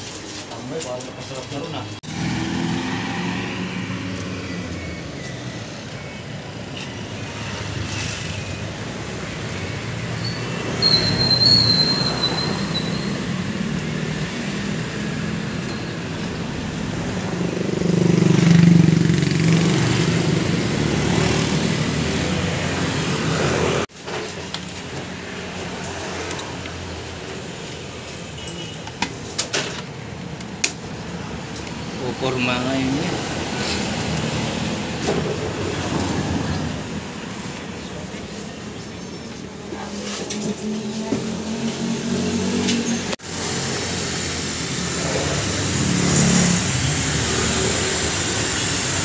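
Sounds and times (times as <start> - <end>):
traffic hum: 0.0 - 49.0
vehicle passing: 1.7 - 4.7, 16.3 - 23.9
brief high squeal: 10.2 - 13.3.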